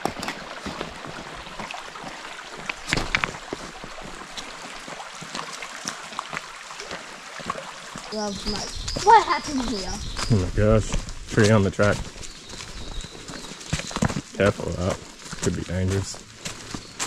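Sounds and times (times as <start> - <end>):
creek running over stones: 0.0 - 17.0
footsteps on rocks: 0.0 - 17.0.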